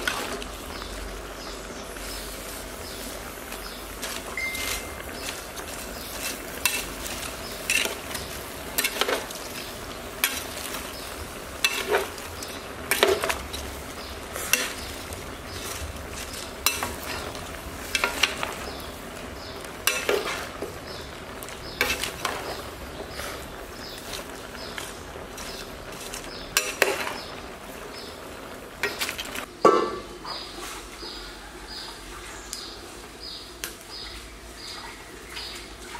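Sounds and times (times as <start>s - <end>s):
food sizzling: 0.0s - 29.6s
metal ladle scraping a pot: 6.0s - 18.8s, 21.7s - 27.4s.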